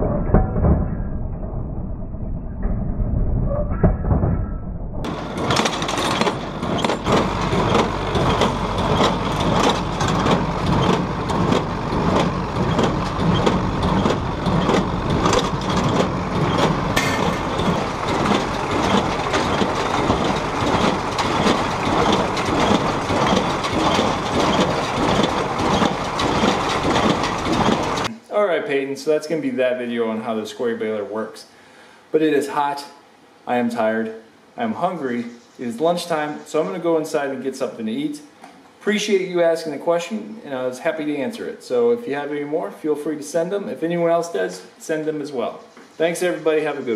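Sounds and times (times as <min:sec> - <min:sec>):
hay baler clattering: 0:05.1 - 0:28.1.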